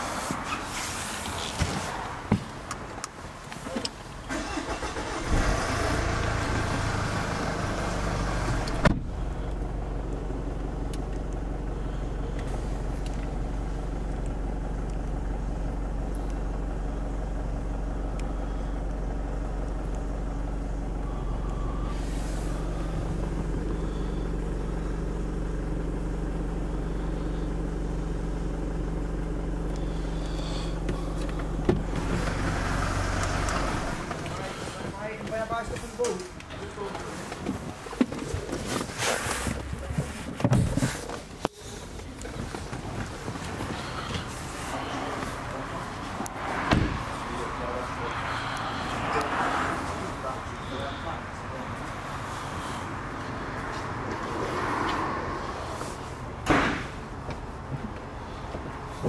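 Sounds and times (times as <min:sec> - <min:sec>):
car engine starting and idling: 0:00.0 - 0:59.0
sharp thump: 0:08.8 - 0:09.2, 0:46.7 - 0:47.0, 0:56.4 - 0:57.0.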